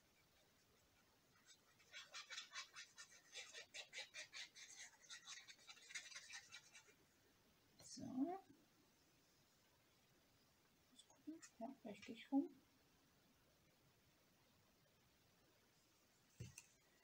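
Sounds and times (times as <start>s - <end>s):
card stock scratching: 1.4s - 6.9s.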